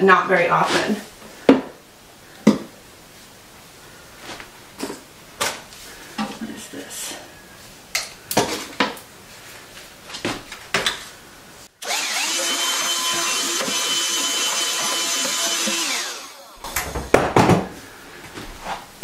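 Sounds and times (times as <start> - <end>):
knocks and rustles of handling: 8.0 - 11.2
handheld vacuum running: 11.8 - 16.6.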